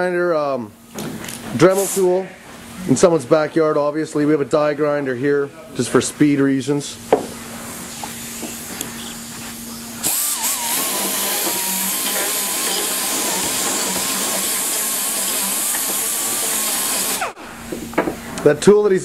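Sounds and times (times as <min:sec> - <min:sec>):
die grinder whining: 0:10.0 - 0:17.4.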